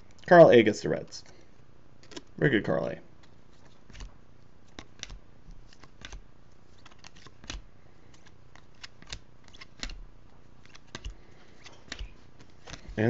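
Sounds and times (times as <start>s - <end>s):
cards flipping and snapping: 2.0s - 2.4s, 3.2s - 13.0s.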